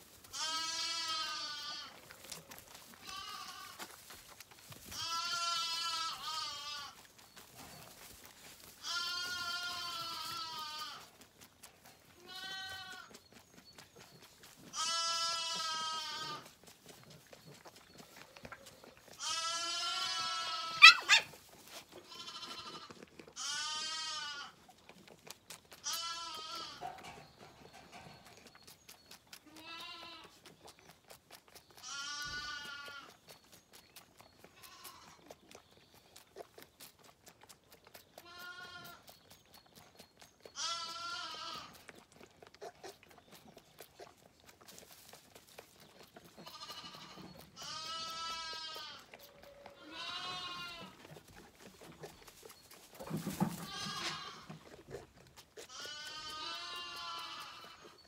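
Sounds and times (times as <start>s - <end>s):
lamb sucking at feeding bottle: 0.1s - 58.0s
lambs bleating: 0.2s - 2.2s, 2.8s - 4.0s, 4.9s - 7.1s, 8.6s - 11.2s, 12.1s - 13.1s, 14.6s - 16.5s, 18.5s - 21.3s, 21.9s - 24.6s, 25.8s - 27.0s, 29.4s - 30.4s, 31.8s - 33.2s, 34.4s - 35.3s, 38.2s - 39.1s, 40.5s - 41.9s, 46.2s - 51.2s, 53.0s - 58.0s.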